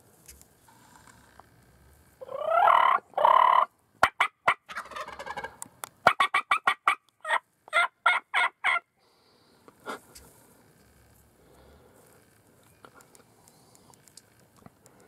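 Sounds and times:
short sharp turkey calls: 2.2 - 8.9
turkey gobbling: 2.2 - 8.9.

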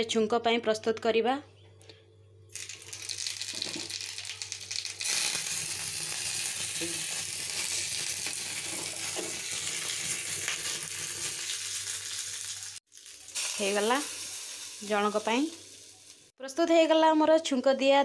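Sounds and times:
spices sizzling in hot oil: 2.5 - 16.3.

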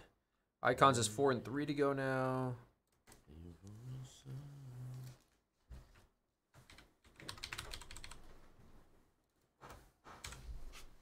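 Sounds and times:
computer keyboard typing: 6.6 - 8.4, 10.2 - 10.4.

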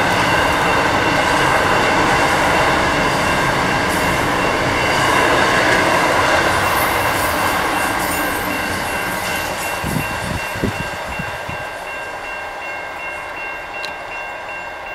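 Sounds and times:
freight train wheels on rails: 0.0 - 14.9.

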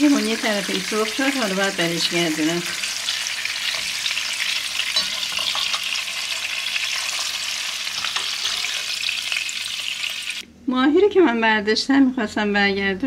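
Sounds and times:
fish sizzling in hot oil: 0.0 - 10.4.

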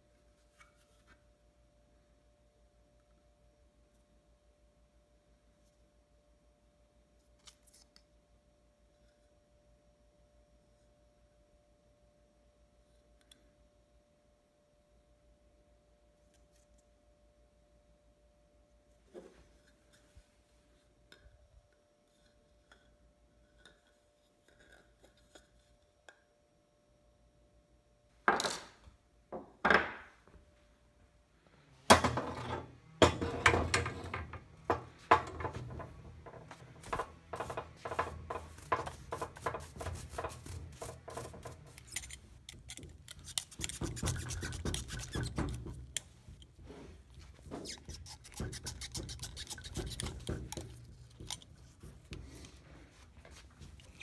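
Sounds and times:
metallic clicking and scraping: 35.2 - 46.6.

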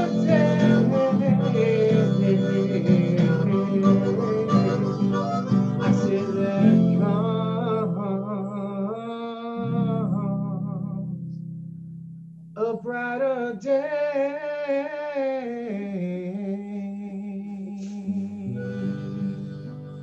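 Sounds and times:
harmonica solo: 0.0 - 8.1, 18.1 - 20.0
strummed acoustic guitar: 0.0 - 12.1, 17.8 - 20.0.

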